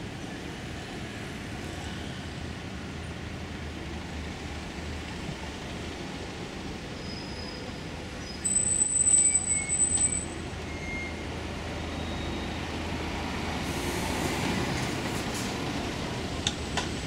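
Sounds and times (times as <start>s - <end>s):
street traffic: 0.0s - 17.0s
bus brake squeal: 6.9s - 12.7s.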